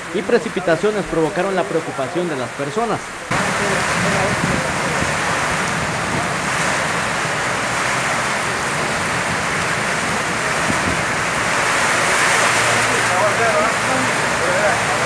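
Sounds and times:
heavy rain pouring: 0.0s - 15.0s.

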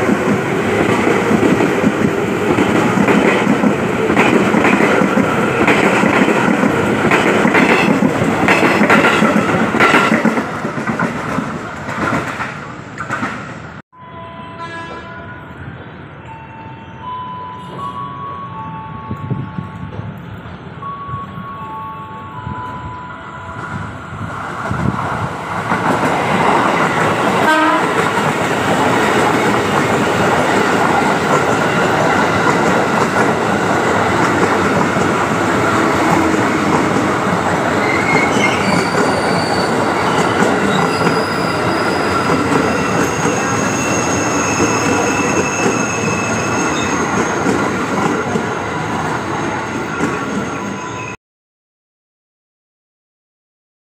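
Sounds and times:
electric train passing: 0.0s - 51.2s
high wheel squeal: 37.7s - 47.5s.

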